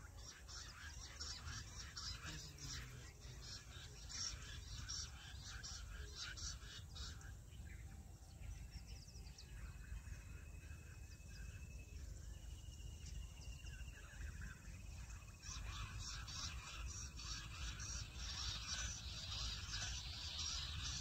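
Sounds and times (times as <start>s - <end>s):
bird chirps: 0.0s - 21.0s.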